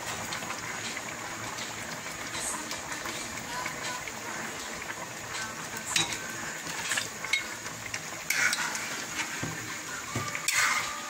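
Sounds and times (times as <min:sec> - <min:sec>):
ladle and plate clinking on pan: 0:05.9 - 0:07.5.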